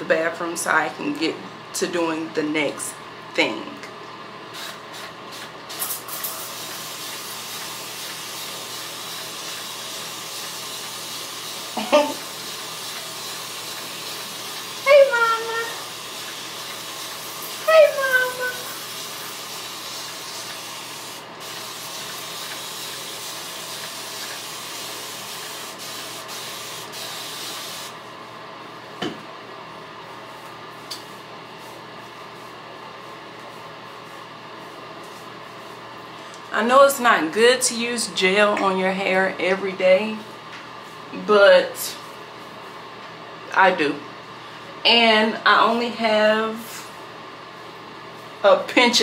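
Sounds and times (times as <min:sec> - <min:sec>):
spray bottle squirting: 0:04.6 - 0:08.8
spray bottle misting hiss: 0:04.6 - 0:14.8, 0:15.5 - 0:28.0.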